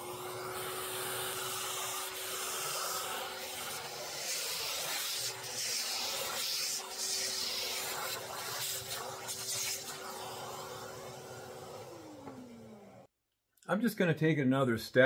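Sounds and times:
vacuum cleaner sucking debris: 0:00.0 - 0:13.1
vacuum motor winding down: 0:00.0 - 0:13.1.

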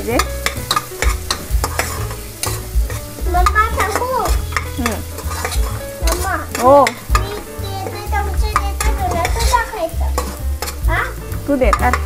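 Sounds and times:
faint sizzle: 0:00.0 - 0:12.0
spoon scraping pot: 0:00.2 - 0:03.1, 0:03.8 - 0:09.6, 0:10.2 - 0:10.9.

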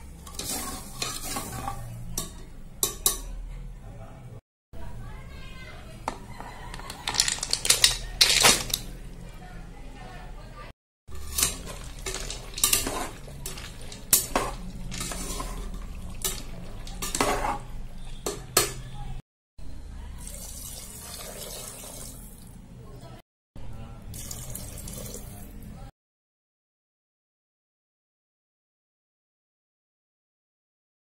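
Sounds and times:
metal spoon scraping pot: 0:00.2 - 0:02.4, 0:11.2 - 0:18.8
water pouring into pot: 0:11.2 - 0:17.1, 0:20.2 - 0:22.4, 0:24.2 - 0:25.4.

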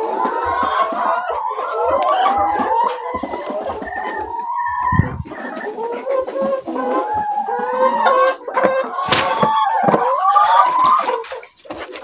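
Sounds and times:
hens calling: 0:00.0 - 0:12.0
hens clucking: 0:00.0 - 0:12.0.

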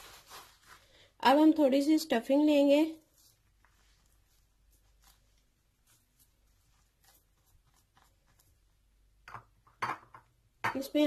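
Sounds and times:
gloved hands squishing meat: 0:03.0 - 0:09.2.

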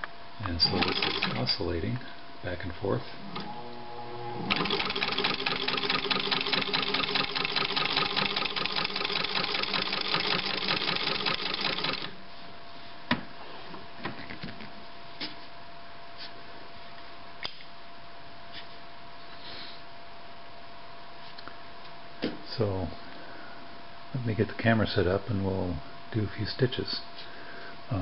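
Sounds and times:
sewing machine clatter: 0:00.6 - 0:01.5, 0:04.5 - 0:12.2.

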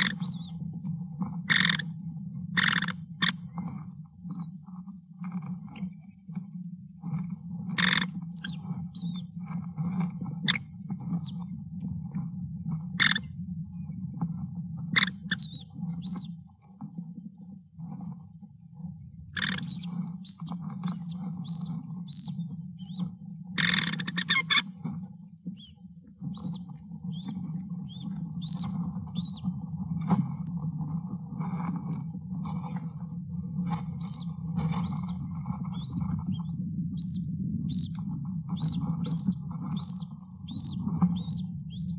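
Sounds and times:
steady low hum: 0:00.0 - 0:41.9
sharp scratchy bursts: 0:19.4 - 0:23.0
thin high chick chirps: 0:19.4 - 0:23.0, 0:26.3 - 0:29.4, 0:34.0 - 0:34.2, 0:35.8 - 0:36.4, 0:37.0 - 0:37.9, 0:38.6 - 0:41.9.

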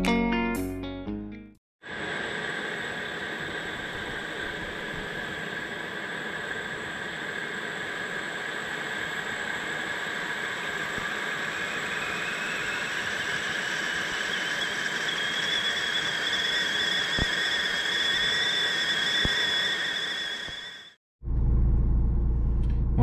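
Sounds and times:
kettle whistling: 0:02.0 - 0:21.0
shrill kettle whistling: 0:02.4 - 0:21.0.

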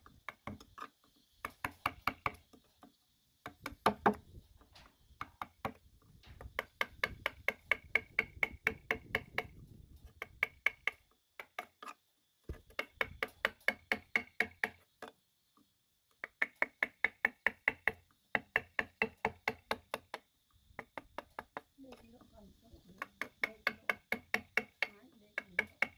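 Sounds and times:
mallet tapping chisel into wood: 0:01.4 - 0:02.4, 0:03.4 - 0:04.2, 0:06.4 - 0:09.6, 0:10.2 - 0:11.7, 0:12.7 - 0:15.1, 0:16.2 - 0:20.2, 0:20.8 - 0:21.7, 0:23.0 - 0:25.9.

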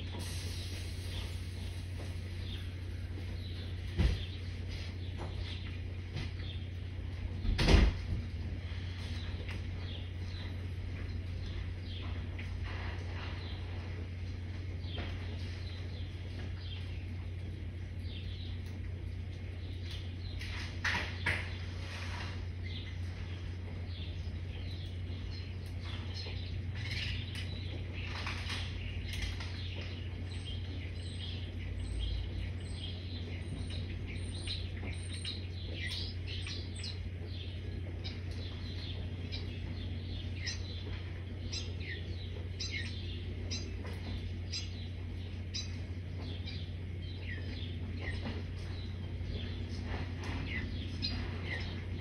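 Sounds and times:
sparrows chirping: 0:00.0 - 0:52.0
steady low hum: 0:00.0 - 0:52.0.

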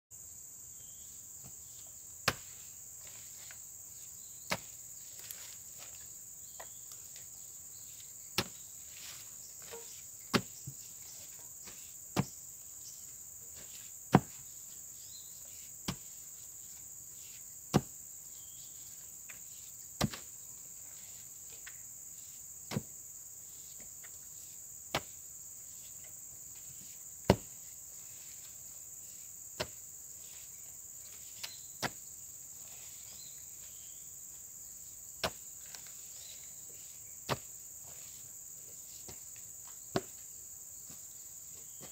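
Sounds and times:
insects chirring: 0:00.1 - 0:41.9
hoe striking clay soil: 0:02.2 - 0:03.6, 0:04.4 - 0:06.0, 0:08.3 - 0:12.5, 0:13.5 - 0:14.8, 0:15.4 - 0:18.0, 0:19.3 - 0:20.3, 0:22.6 - 0:27.6, 0:29.1 - 0:32.0, 0:35.2 - 0:36.5, 0:37.2 - 0:38.2.

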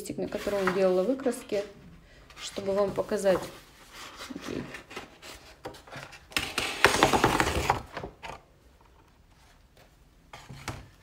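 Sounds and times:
paper handling: 0:00.3 - 0:01.7.

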